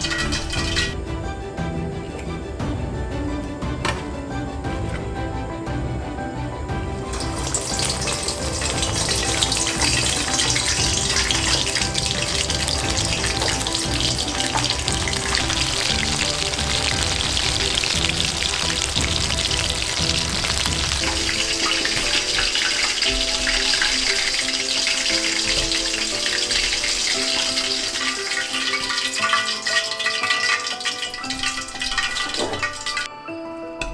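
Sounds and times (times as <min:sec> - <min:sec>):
chicken sizzling in hot oil: 0:07.0 - 0:33.1.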